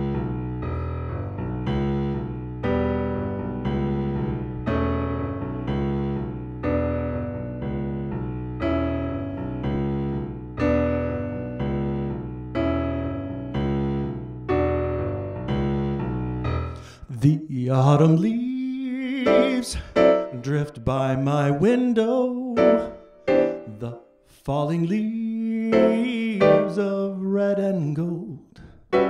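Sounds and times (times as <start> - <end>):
piano playing jazz chords: 0.0 - 17.0, 17.6 - 24.2, 24.9 - 27.4.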